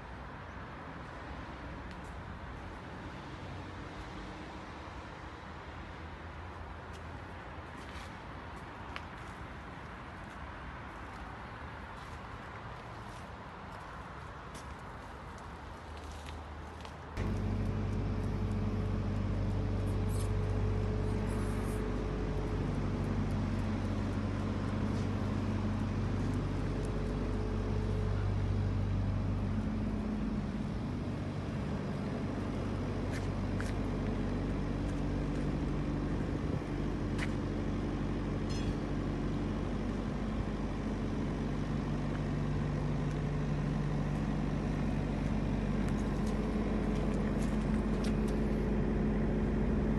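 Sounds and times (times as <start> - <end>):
diesel engine idling: 17.2 - 49.9.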